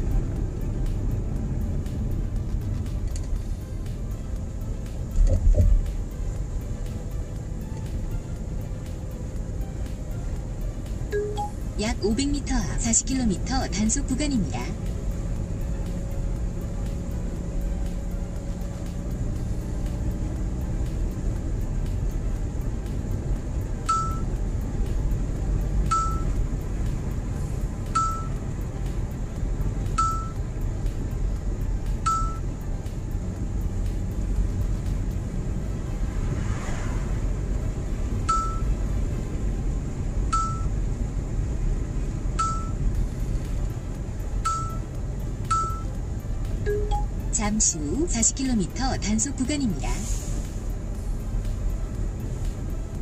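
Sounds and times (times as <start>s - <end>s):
car road and engine rumble: 0.0s - 53.0s
short high electronic beeps: 11.1s - 11.6s, 23.9s - 24.3s, 25.9s - 26.3s, 28.0s - 28.4s, 30.0s - 30.4s, 32.0s - 32.5s, 38.3s - 38.7s, 40.4s - 40.7s, 42.4s - 42.8s, 44.4s - 44.8s, 45.5s - 45.9s, 46.7s - 47.2s.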